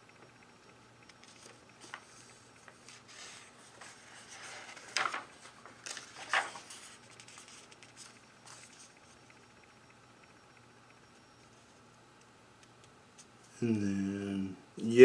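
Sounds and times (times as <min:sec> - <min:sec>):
page flipping swishes: 0:01.2 - 0:08.9
paper page rustling: 0:01.2 - 0:09.0.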